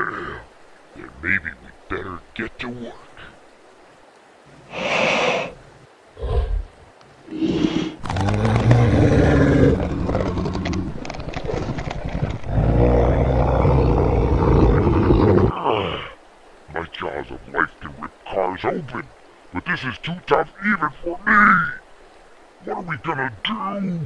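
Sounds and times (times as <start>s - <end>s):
dinosaur roars and growls: 7.3s - 11.6s, 12.4s - 16.2s.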